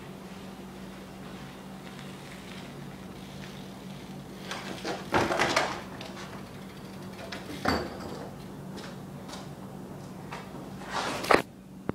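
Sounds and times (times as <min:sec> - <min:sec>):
bike frame clattering on asphalt: 0:04.4 - 0:08.4.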